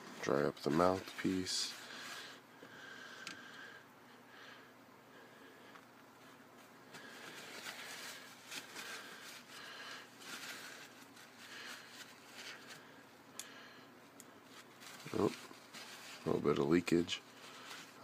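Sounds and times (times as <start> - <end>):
paper towel rubbing: 14.5 - 18.0.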